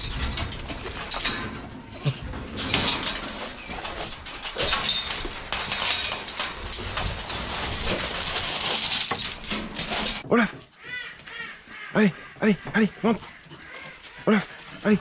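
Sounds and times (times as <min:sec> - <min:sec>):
metal cage clanking and rattling: 0:00.0 - 0:10.2.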